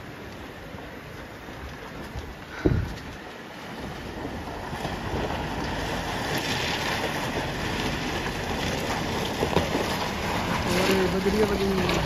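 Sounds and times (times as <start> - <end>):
water splashing around tyres: 0.0 - 12.0
car engine: 3.6 - 12.0.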